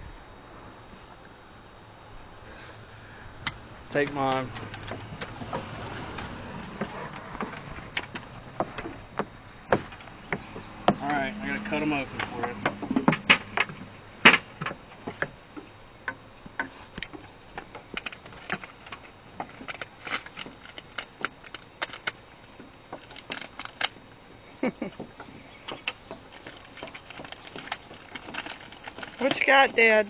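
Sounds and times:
plastic wrapping crinkling: 25.8 - 29.8.

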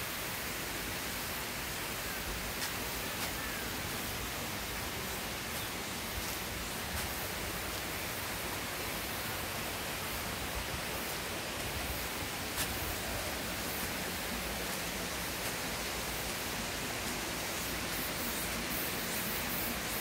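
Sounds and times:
water rushing over rocks: 0.0 - 20.0.

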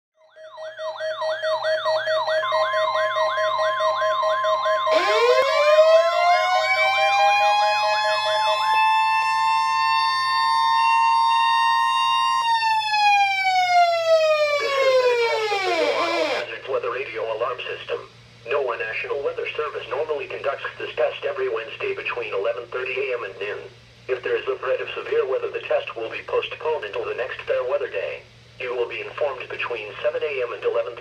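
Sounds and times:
siren winding up and down: 0.2 - 16.6
steady siren tones: 0.2 - 16.6
siren warbling quickly: 0.3 - 16.6.

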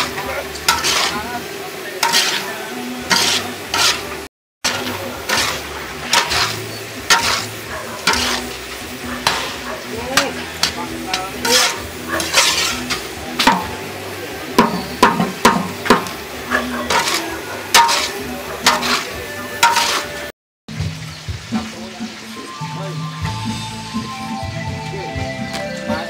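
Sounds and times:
spatula scraping a pan: 0.0 - 13.9, 14.6 - 20.3
frying sizzle: 0.0 - 26.0.

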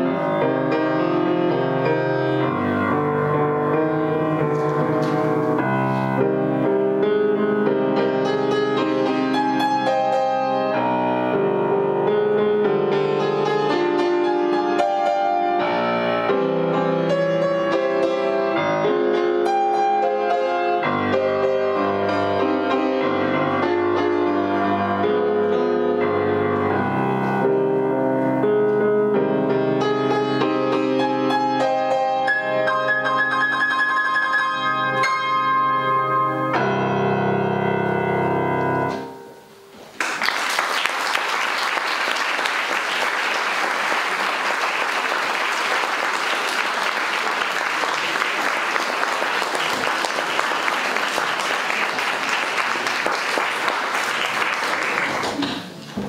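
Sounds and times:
grand piano playing: 0.0 - 40.0, 41.0 - 56.0
audience applauding: 39.9 - 55.9.

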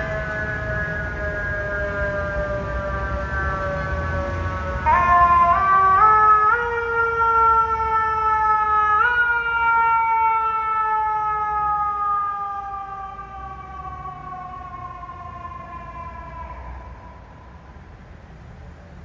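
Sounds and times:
mechanical siren wailing: 0.0 - 17.3.

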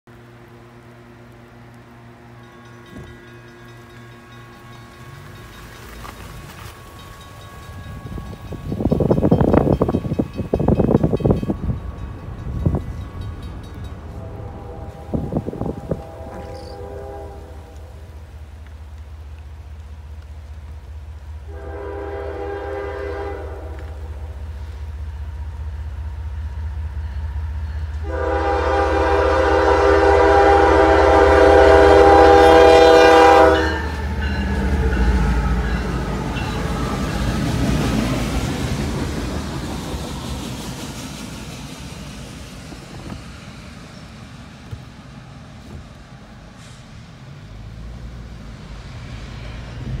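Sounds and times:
train rumbling past: 0.1 - 50.0
train air horn blasts: 14.0 - 18.3, 21.4 - 24.8, 27.8 - 37.4.

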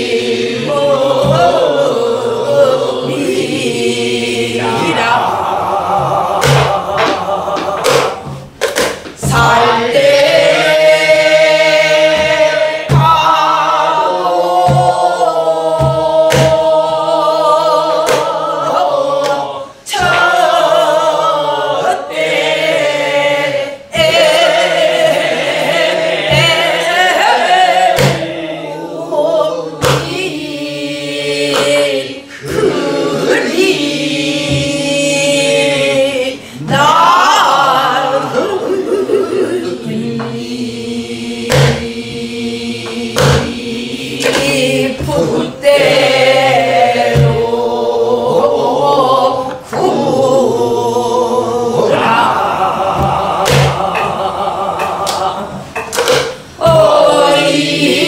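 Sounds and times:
group singing folk song: 0.0 - 58.0
barrel drum strokes: 0.5 - 3.4, 4.6 - 17.2, 23.9 - 28.5, 41.4 - 48.5, 51.8 - 57.6.

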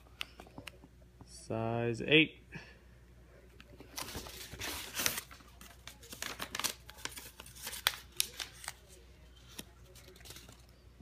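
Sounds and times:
paper rustling and crinkling: 3.8 - 10.8.

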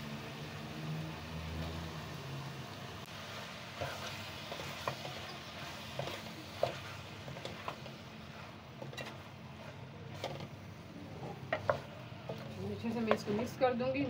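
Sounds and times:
wooden spoon scraping metal pan: 3.8 - 14.0.

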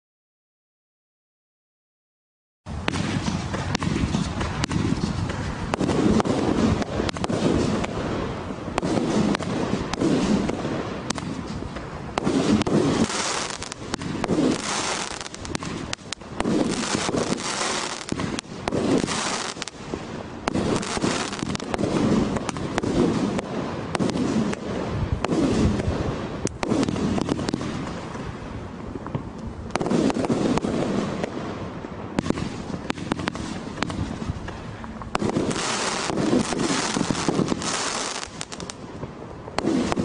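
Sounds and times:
firework crackle and hiss: 2.7 - 40.0.

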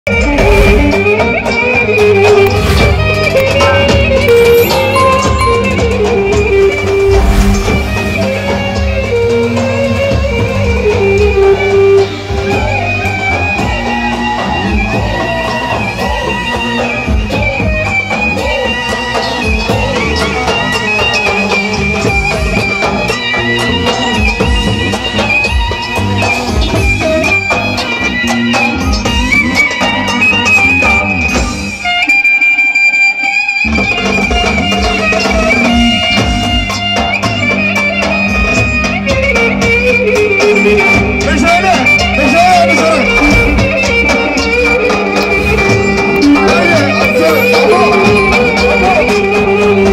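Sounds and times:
high melody line: 3.8 - 9.2, 46.2 - 49.9
drum beat and bass: 34.0 - 49.9.

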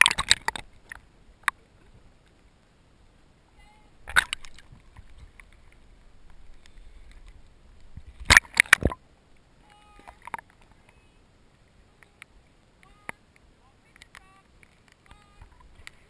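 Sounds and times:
sharp clicks or knocks: 8.2 - 9.0.

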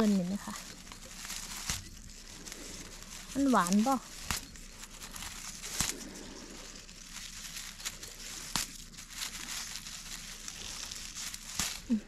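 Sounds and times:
dry leaves rustling and crackling: 0.0 - 12.0.

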